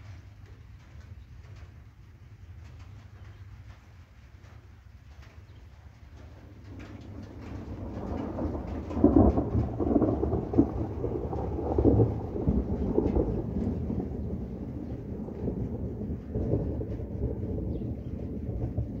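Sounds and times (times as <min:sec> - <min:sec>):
rolling thunder: 0:04.4 - 0:19.0.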